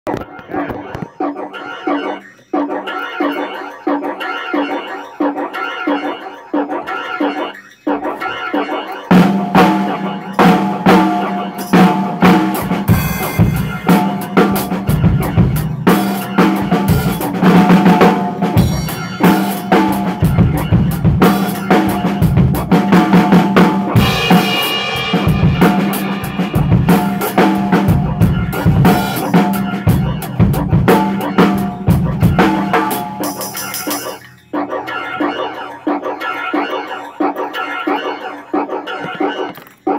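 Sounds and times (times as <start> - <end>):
cymbal strikes: 9.1 - 30.1
bass drum: 9.2 - 33.2.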